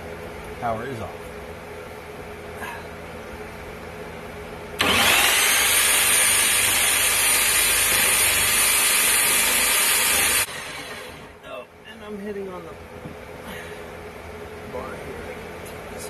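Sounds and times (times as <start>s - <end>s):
power drill boring through wood: 4.8s - 11.4s.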